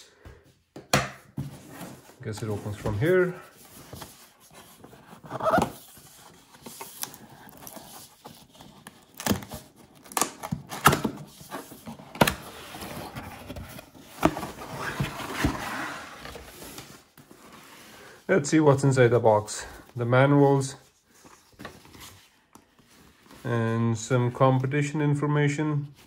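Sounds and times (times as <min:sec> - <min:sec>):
cardboard lid rustling scrape: 0:11.1 - 0:18.0.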